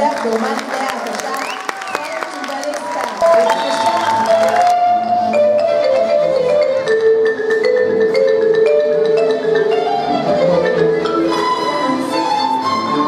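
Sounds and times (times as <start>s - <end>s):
marimba notes: 3.2s - 13.0s
orchestra strings: 9.2s - 13.0s.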